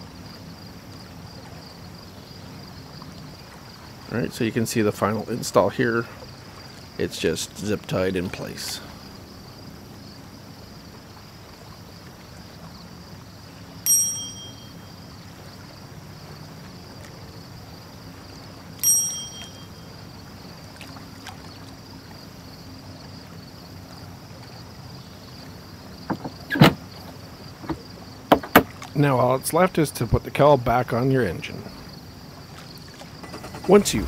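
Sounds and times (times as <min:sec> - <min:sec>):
faint steady high hiss: 0:00.0 - 0:34.0
bright ringing ding: 0:13.8 - 0:14.9, 0:18.8 - 0:19.9
sharp knocks on motor cover: 0:27.7 - 0:28.7.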